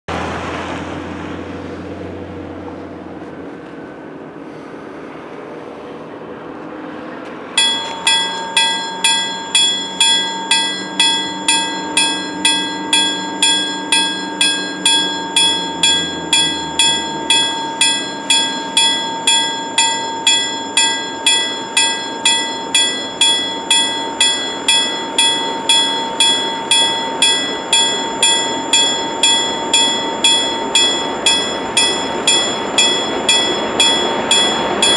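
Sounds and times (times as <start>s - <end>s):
low engine drone: 0.1s - 34.9s
level crossing bell ringing: 7.6s - 34.9s.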